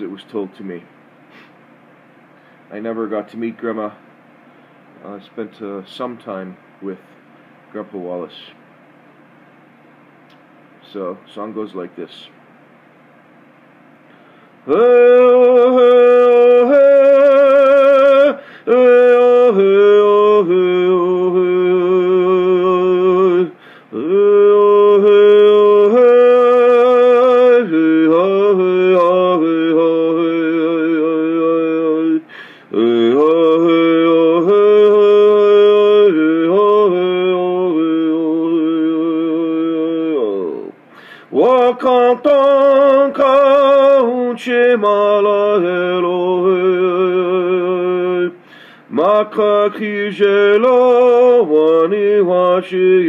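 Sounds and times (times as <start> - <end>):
man singing unaccompanied: 5.0 - 7.0, 14.6 - 53.0.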